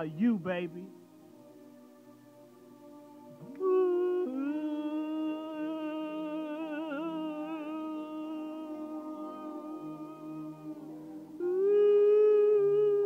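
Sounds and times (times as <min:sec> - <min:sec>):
man humming: 0:03.4 - 0:13.0.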